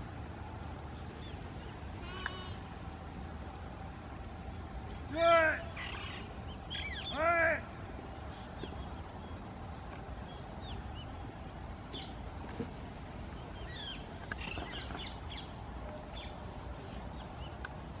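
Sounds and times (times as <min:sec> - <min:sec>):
loud harsh parakeet call: 0:05.2 - 0:07.7.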